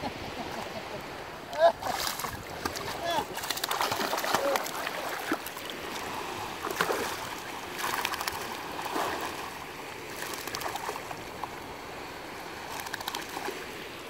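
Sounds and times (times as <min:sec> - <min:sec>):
water splashing around swimming dog: 0:01.8 - 0:11.6, 0:12.6 - 0:13.8.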